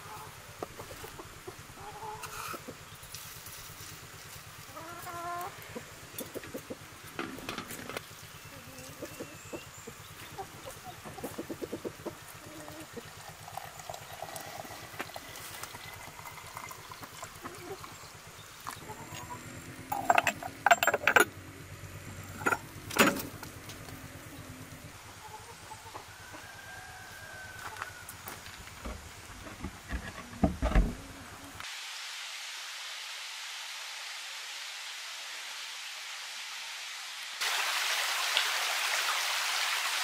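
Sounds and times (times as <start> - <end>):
chickens clucking: 0.0 - 3.2, 4.6 - 13.2, 17.0 - 21.2, 22.3 - 27.9.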